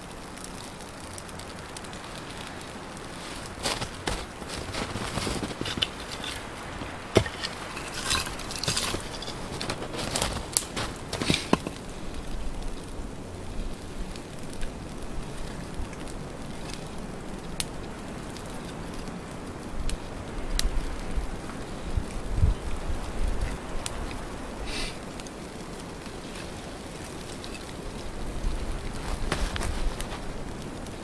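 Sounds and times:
sticks rustling and snapping: 0.0s - 13.0s, 23.4s - 31.0s
boots crunching in snow: 3.1s - 11.8s, 29.0s - 30.2s.

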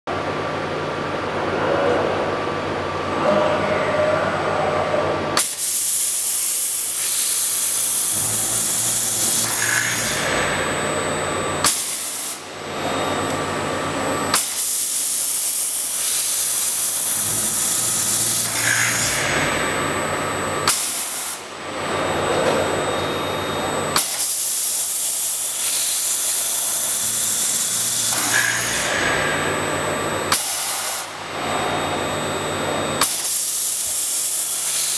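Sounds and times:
machine running hum: 0.1s - 34.6s
drill hissing into steel: 5.5s - 12.4s, 14.3s - 19.9s, 24.3s - 29.6s.

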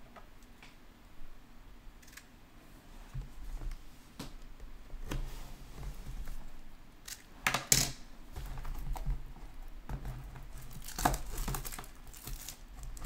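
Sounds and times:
plastic wrap tearing and crinkling: 10.4s - 13.0s.

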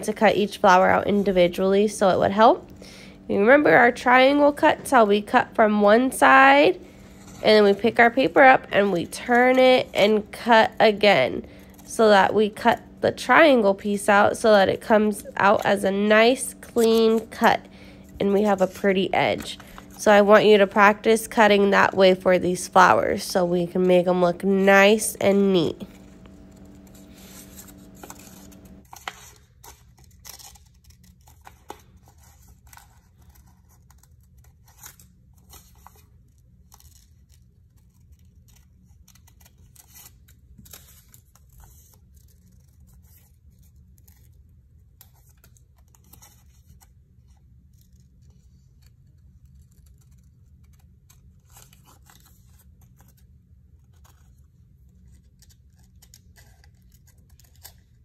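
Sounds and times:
paper rustling: 6.0s - 58.0s
scissors snipping paper: 24.8s - 36.0s, 36.6s - 44.4s, 47.6s - 58.0s.

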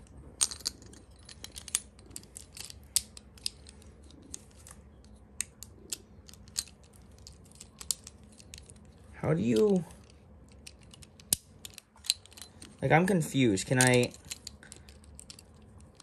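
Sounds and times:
plastic parts clicking: 0.4s - 4.8s.

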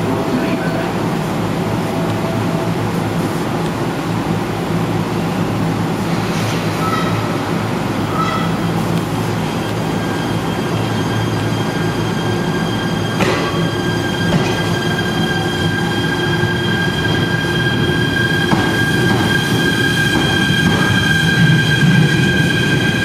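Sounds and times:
high electric whine of train: 0.0s - 23.0s
low train rumble: 0.0s - 23.0s
train thump: 13.1s - 14.8s, 18.4s - 22.1s.

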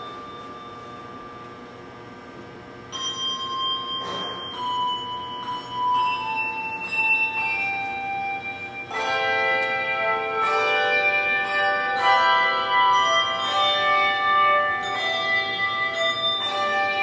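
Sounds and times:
handbell choir ringing: 0.0s - 1.6s, 2.9s - 17.0s.

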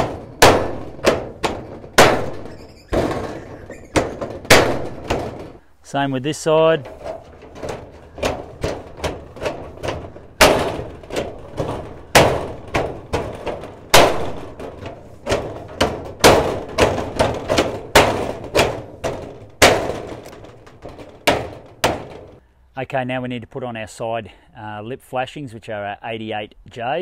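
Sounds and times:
sharp knocks on steel roof: 0.0s - 5.6s, 6.8s - 22.4s.

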